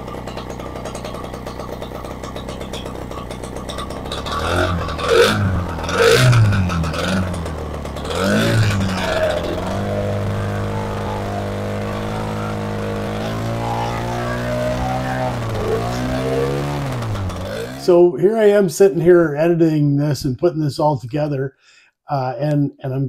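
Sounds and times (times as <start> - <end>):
two-stroke engine revving: 0.0 - 18.6.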